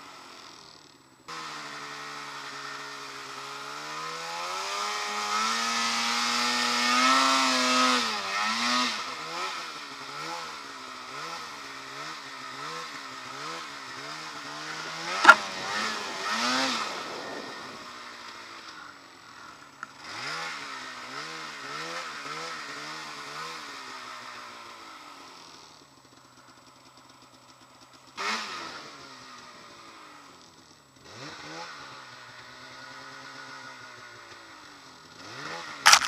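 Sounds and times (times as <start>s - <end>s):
snowmobile engine revving: 1.3s - 24.4s, 35.2s - 36.0s
sharp knock: 15.2s - 15.9s.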